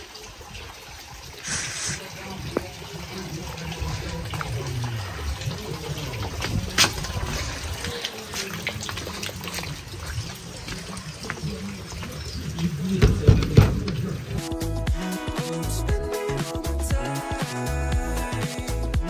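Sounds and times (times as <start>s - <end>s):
sharp water drips: 0.0s - 17.8s
rainwater trickling: 0.0s - 18.4s.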